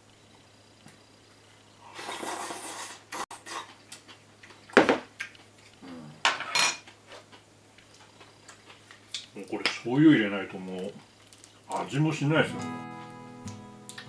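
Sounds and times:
tableware and chopsticks clinking: 0:06.3 - 0:06.8.

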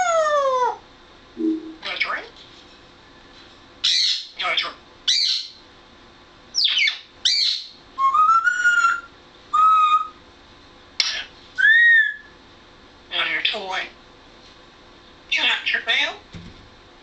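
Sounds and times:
parrot squawks: 0:03.8 - 0:05.6, 0:06.6 - 0:10.2, 0:11.0 - 0:12.3
parrot whistling: 0:06.6 - 0:10.2, 0:11.1 - 0:12.3.

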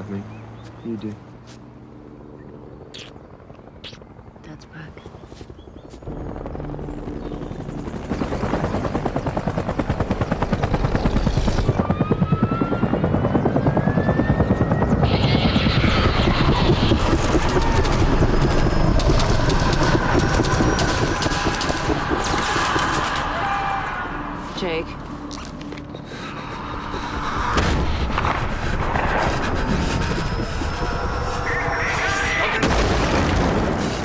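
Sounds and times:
helicopter whine: 0:00.0 - 0:34.0
helicopter rotor beat: 0:01.2 - 0:34.0
rapid sharp cracks: 0:16.9 - 0:23.6.

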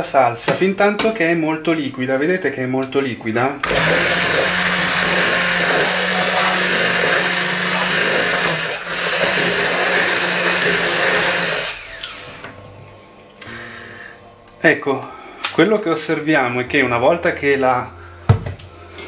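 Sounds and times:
immersion blender running: 0:03.6 - 0:12.7.

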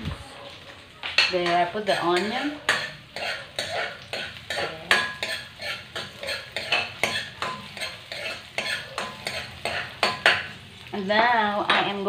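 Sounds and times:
metal ladle scraping frying pan: 0:01.2 - 0:10.7.

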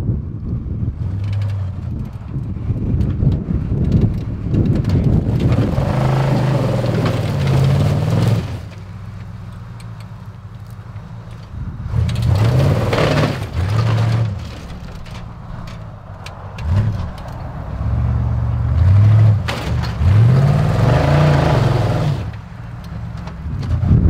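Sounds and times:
engine revving in surges: 0:05.0 - 0:08.9, 0:11.6 - 0:24.0.

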